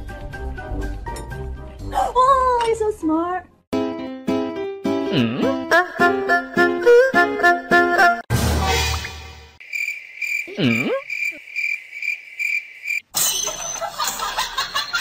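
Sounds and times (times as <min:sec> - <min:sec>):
cricket chirping: 0:09.6 - 0:13.6.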